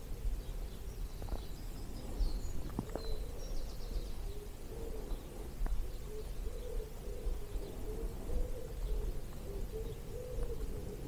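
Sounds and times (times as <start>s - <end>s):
songbirds chirping: 0.0s - 11.0s
wind rumble on microphone: 0.0s - 11.0s
pigeon cooing: 2.9s - 11.0s.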